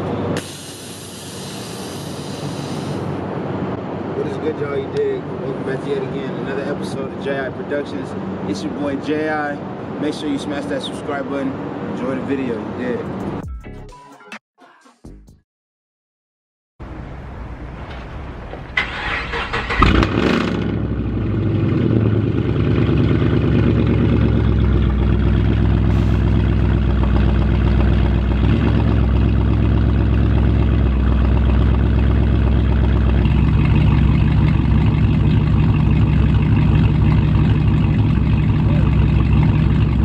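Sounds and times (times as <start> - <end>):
car engine starting and idling: 16.9 - 40.0.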